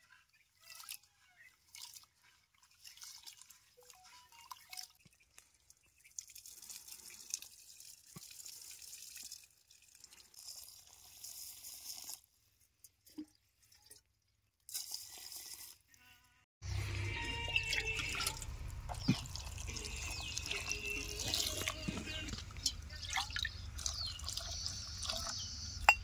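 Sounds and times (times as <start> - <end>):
water splashing and dripping: 0.6 - 12.2, 16.8 - 26.0.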